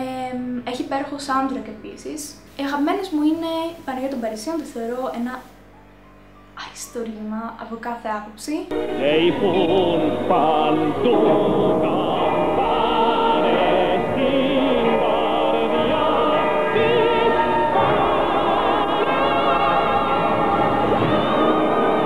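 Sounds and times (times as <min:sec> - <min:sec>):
choir singing: 0:08.7 - 0:22.0
orchestra: 0:08.7 - 0:22.0.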